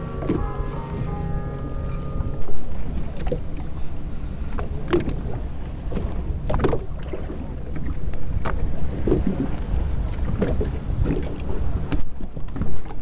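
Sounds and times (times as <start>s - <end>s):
steady low rumble: 0.0s - 9.0s
water splashing against boat hull: 4.4s - 13.0s.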